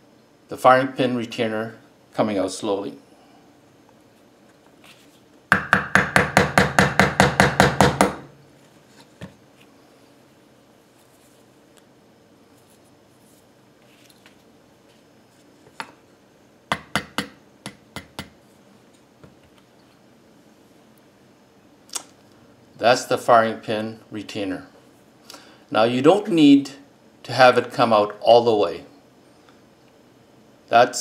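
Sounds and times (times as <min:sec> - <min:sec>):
hammer tapping metal punch: 0:05.5 - 0:08.3, 0:16.7 - 0:18.4.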